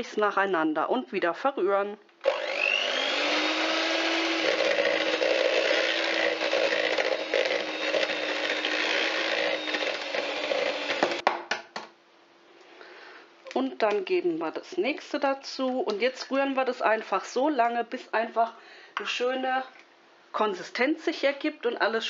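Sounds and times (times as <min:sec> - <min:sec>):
electric hand mixer running: 0:02.2 - 0:11.2
mixer knocking against bowl: 0:03.8 - 0:11.4.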